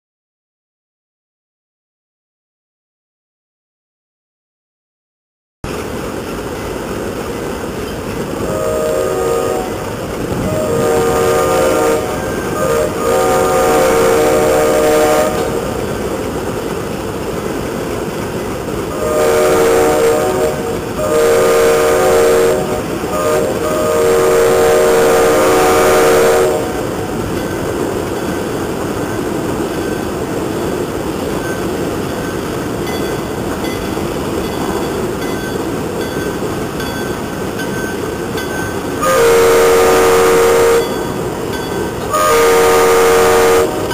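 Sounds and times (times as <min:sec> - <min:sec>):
diesel locomotives rumbling: 0:05.6 - 0:43.9
locomotive air horn blasts: 0:08.4 - 0:15.8, 0:18.9 - 0:26.9, 0:39.0 - 0:41.1, 0:42.1 - 0:43.9.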